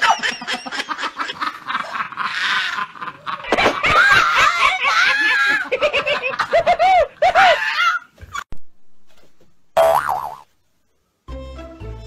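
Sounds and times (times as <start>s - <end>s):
people laughing and snickering: 0.0s - 8.0s.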